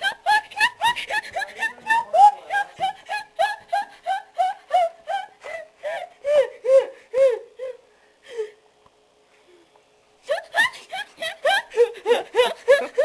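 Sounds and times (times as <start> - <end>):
girl squealing laugh: 0.0 - 7.4, 10.2 - 13.0.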